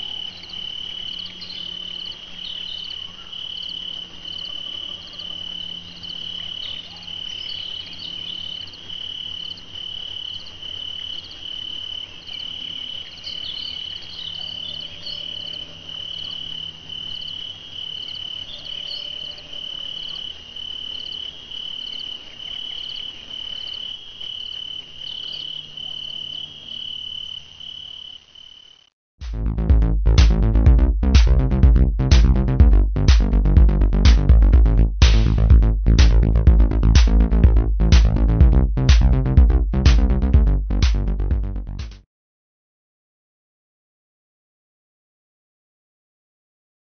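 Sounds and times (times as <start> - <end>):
cricket chirping: 0.0 - 28.9.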